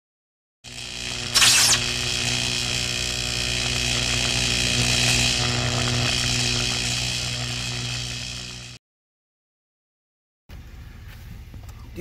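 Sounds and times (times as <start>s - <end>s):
electric arc zap: 0.7s - 8.8s
electrical buzz with crackling hiss: 0.7s - 8.8s.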